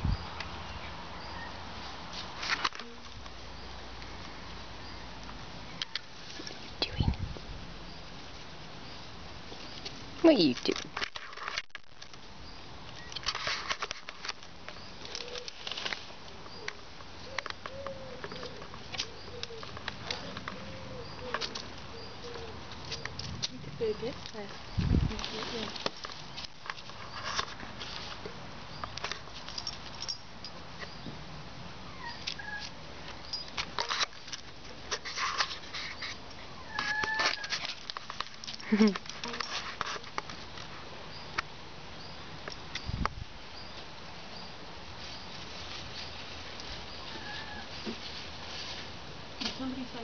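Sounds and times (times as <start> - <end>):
rustles and scuffs: 1.7 - 3.4, 13.2 - 16.6, 17.2 - 30.0, 32.6 - 40.8, 44.8 - 50.0
pigeon cooing: 16.6 - 23.1.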